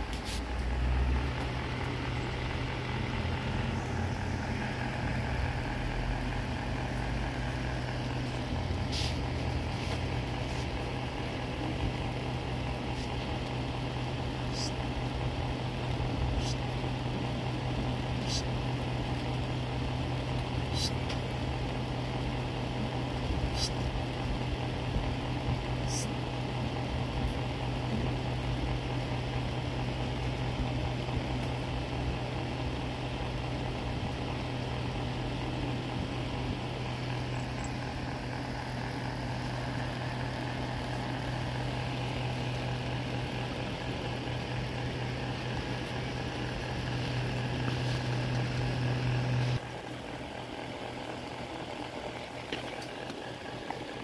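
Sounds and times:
mechanical hum with hiss: 16.3s - 16.7s.

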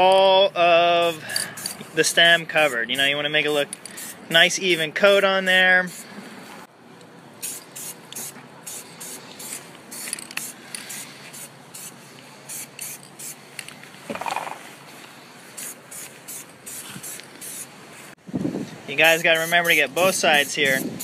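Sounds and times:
spray paint can hissing: 1.6s - 3.1s, 3.8s - 4.3s, 7.4s - 14.7s, 15.5s - 18.1s, 19.2s - 21.0s.

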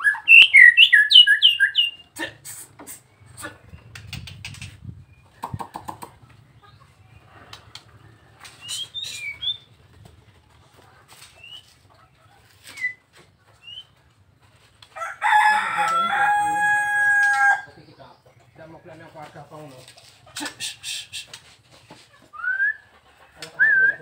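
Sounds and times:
bird clicks and whistled notes: 3.8s - 6.1s, 7.8s - 9.7s, 12.6s - 13.0s, 13.6s - 14.0s
rooster crowing: 15.0s - 17.7s.

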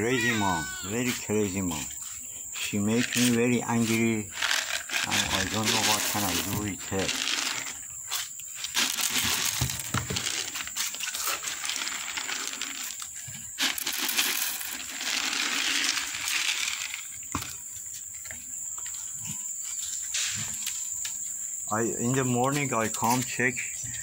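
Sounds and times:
kibble rattling in plastic jar: 2.8s - 7.9s, 8.6s - 17.2s
kibble pouring onto wooden board: 4.4s - 7.8s, 8.6s - 17.1s.

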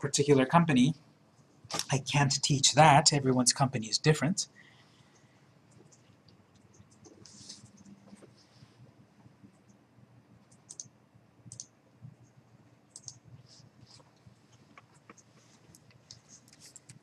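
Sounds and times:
low room hum: 0.0s - 17.0s
computer mouse clicks: 10.4s - 10.9s, 11.5s - 12.3s, 12.9s - 13.2s.

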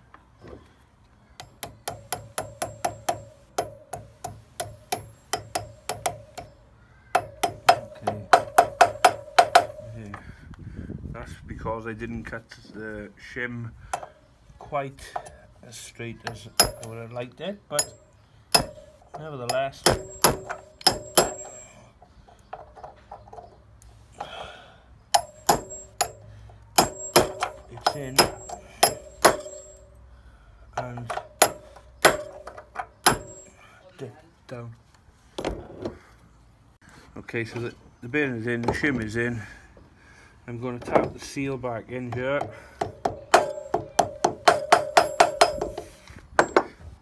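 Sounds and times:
hammer tapping metal: 1.4s - 10.2s, 16.2s - 17.1s, 17.7s - 21.8s, 25.1s - 29.9s, 30.8s - 33.6s, 42.1s - 46.7s.

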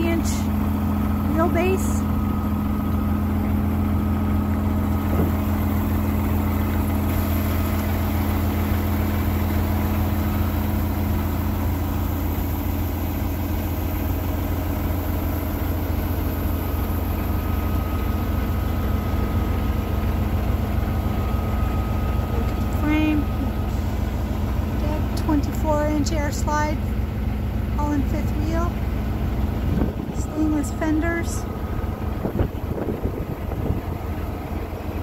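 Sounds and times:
diesel truck engine idling: 0.0s - 35.0s.

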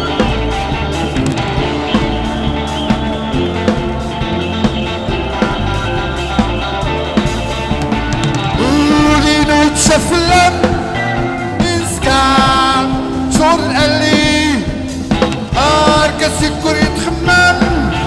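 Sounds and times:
live band music through loudspeakers: 0.0s - 18.0s
man singing long held phrases: 8.6s - 14.9s, 15.5s - 18.0s.

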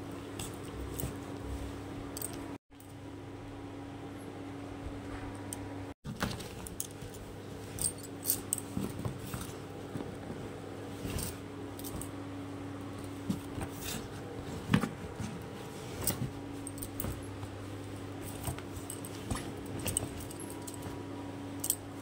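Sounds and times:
cloth rustling: 12.9s - 22.0s.

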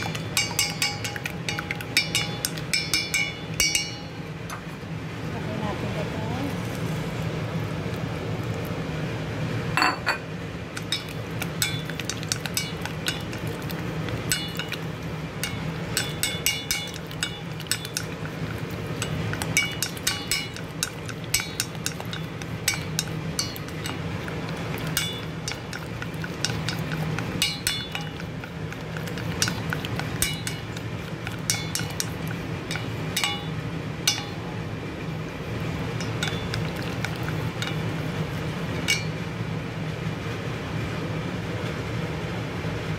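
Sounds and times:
chopsticks clinking metal bowl: 0.0s - 4.6s, 9.8s - 10.2s, 10.8s - 34.4s, 36.0s - 38.2s, 38.8s - 39.2s
low steady hum: 0.0s - 42.9s.

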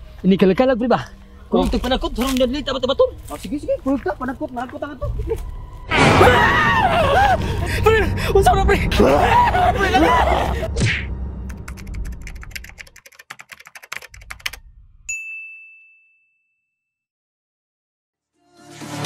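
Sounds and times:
typewriter bell ding: 15.1s - 16.7s.

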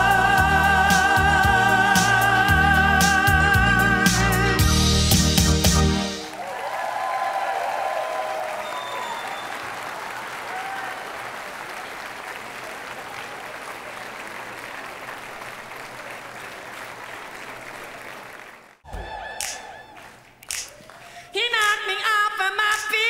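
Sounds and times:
audience applauding: 6.2s - 21.3s.

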